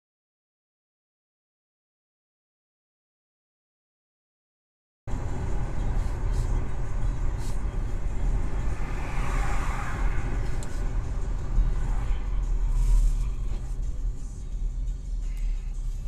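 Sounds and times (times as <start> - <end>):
car engine and road noise: 5.1 - 16.0.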